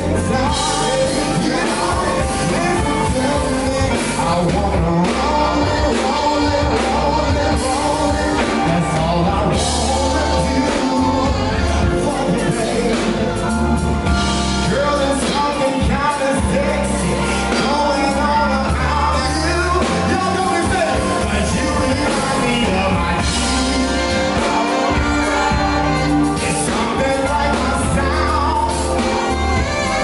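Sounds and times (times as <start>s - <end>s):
bass guitar: 0.0s - 30.0s
drum kit: 0.0s - 30.0s
electric guitar: 0.0s - 30.0s
keyboard: 0.0s - 30.0s
person singing: 0.0s - 30.0s.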